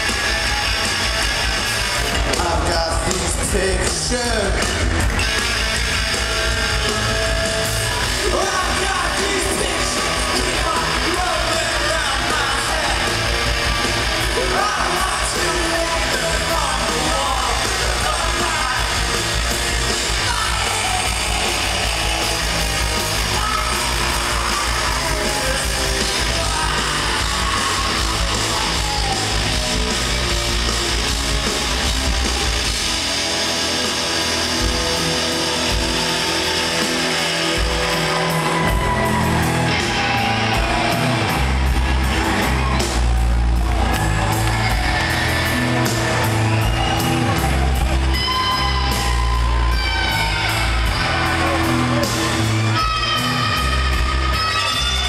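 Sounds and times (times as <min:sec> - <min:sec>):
rock band playing live: 0:00.0 - 0:55.0
person singing and shouting: 0:08.0 - 0:13.5, 0:14.2 - 0:29.7.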